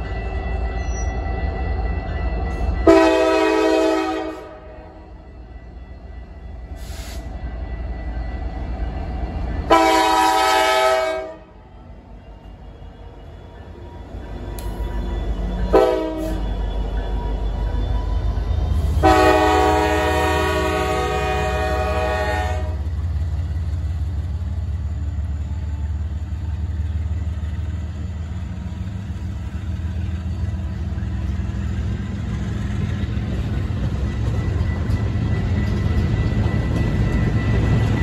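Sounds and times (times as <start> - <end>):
diesel locomotives rumbling: 0.0 - 38.0
freight train horn blast: 2.8 - 5.0, 9.7 - 11.6, 15.7 - 16.5, 18.9 - 22.9.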